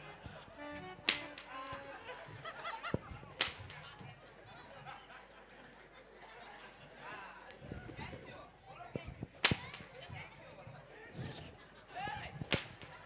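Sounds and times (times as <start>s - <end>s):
audience chatter and laughter: 0.0s - 13.0s
whip cracking: 1.0s - 1.8s, 3.4s - 3.9s, 9.4s - 10.0s, 12.4s - 13.0s.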